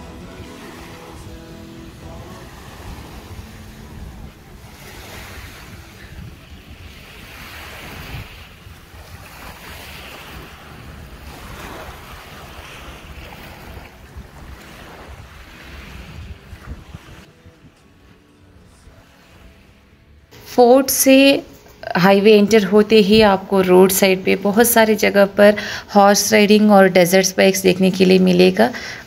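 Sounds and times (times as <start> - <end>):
wind buffeting microphone: 0.0 - 18.0
small waves washing onto shore: 0.0 - 20.6.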